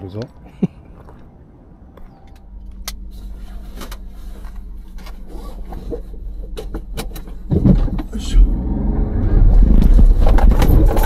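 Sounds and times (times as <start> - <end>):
car engine humming: 0.0 - 11.0
sharp clicks and rattles: 2.3 - 8.2, 9.5 - 11.0.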